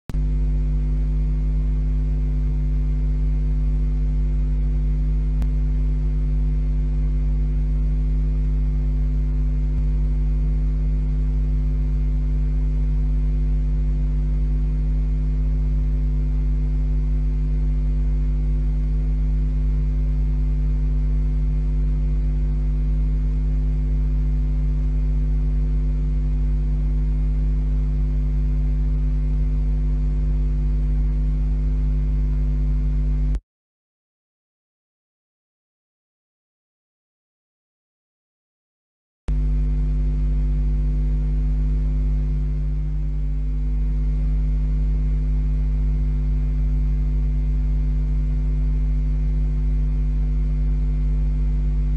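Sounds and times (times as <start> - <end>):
electrical mains hum: 0.1 - 33.4, 39.3 - 51.9.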